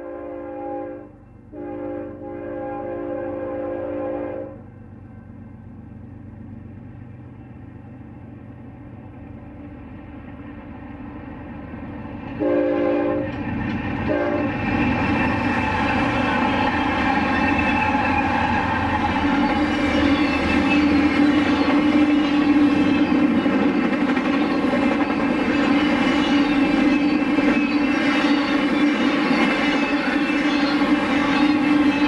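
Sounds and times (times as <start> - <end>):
locomotive air horn: 0.0 - 4.7, 12.4 - 13.4, 14.1 - 14.6
rail noise: 0.0 - 32.0
locomotive engine rumble: 3.2 - 32.0.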